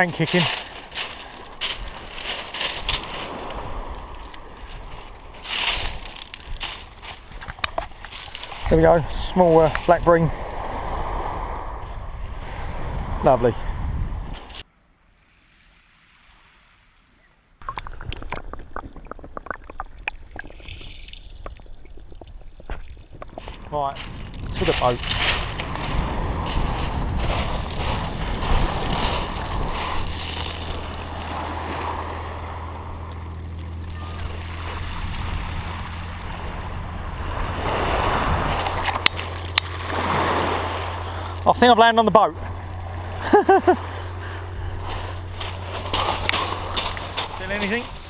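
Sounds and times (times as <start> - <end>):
waves washing over pebbles: 0.0 - 11.8, 23.0 - 48.0
water sloshing: 0.1 - 10.9, 17.6 - 48.0
faint hiss: 15.0 - 17.6.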